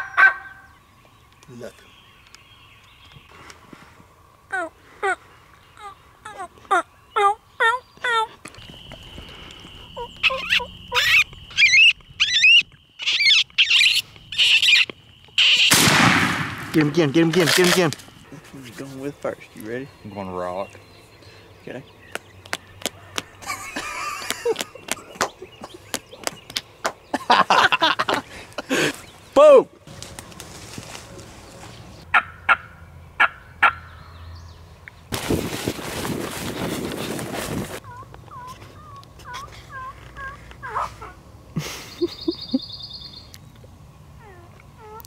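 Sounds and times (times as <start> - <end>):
wild turkey yelping: 0.0 - 0.7, 9.9 - 15.8, 32.1 - 34.0, 37.8 - 41.2
burst of rustling: 35.1 - 37.8.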